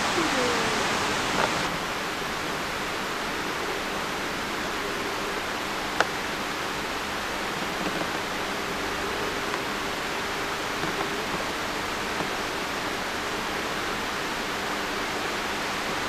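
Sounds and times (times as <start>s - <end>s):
stream water rushing: 0.0s - 8.6s.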